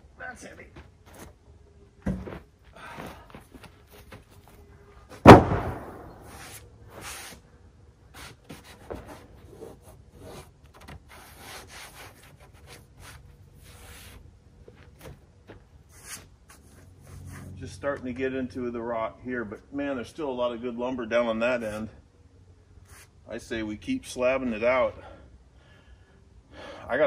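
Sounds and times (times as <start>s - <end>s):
gloved hands rubbing wood: 8.1s - 14.3s.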